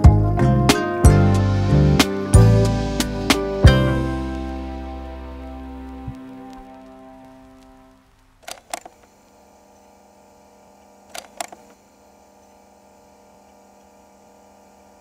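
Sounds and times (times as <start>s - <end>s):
electrical hum: 0.0s - 15.0s
glitchy clicks: 5.4s - 9.1s.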